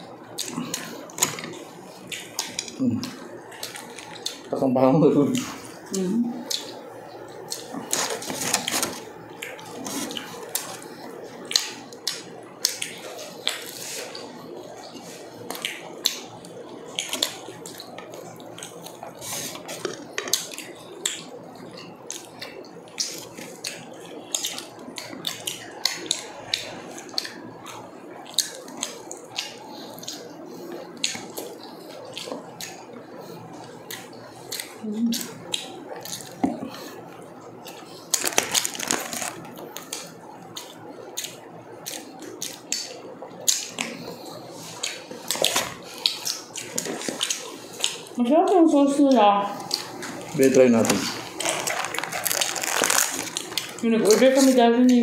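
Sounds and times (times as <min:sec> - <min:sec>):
wet chewing: 0:00.4 - 0:04.5, 0:05.2 - 0:55.0
food crackling as torn: 0:07.4 - 0:10.9, 0:38.1 - 0:42.9, 0:49.6 - 0:54.6.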